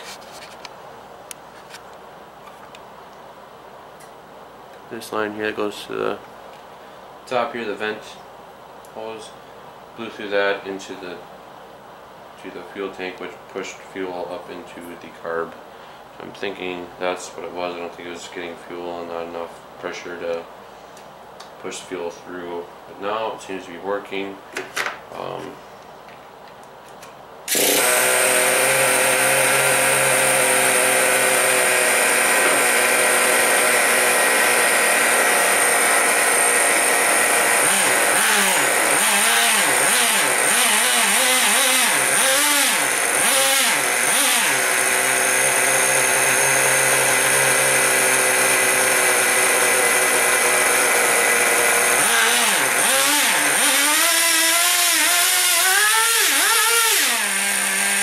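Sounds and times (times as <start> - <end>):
model truck engine revving: 27.5 - 58.0.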